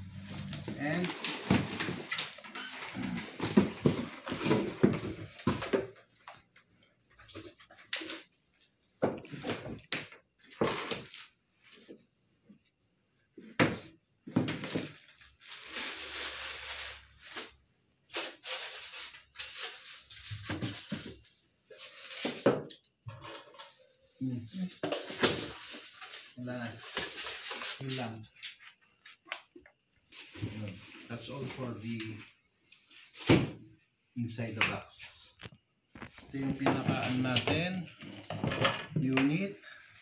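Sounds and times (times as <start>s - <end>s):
plastic wrapping rustling: 0.0s - 5.4s, 14.6s - 20.5s.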